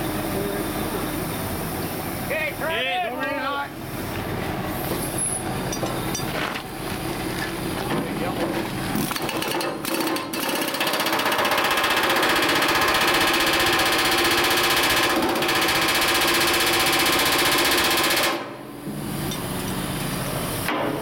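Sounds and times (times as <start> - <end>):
pneumatic rivet gun hammering: 8.9 - 19.8, 20.6 - 21.0.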